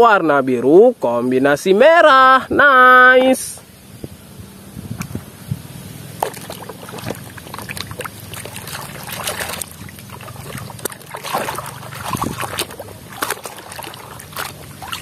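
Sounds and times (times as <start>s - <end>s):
water splashing in a basin: 6.0s - 15.0s.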